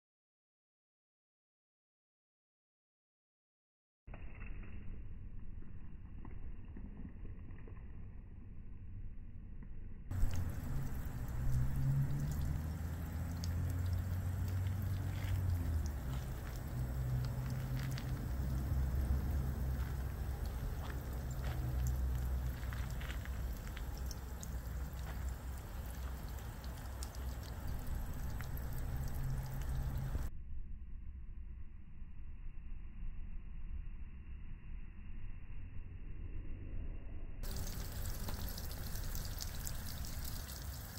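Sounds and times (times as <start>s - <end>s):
low rumble: 4.3s - 40.9s
water trickling down rain chain: 10.1s - 30.3s, 37.4s - 40.9s.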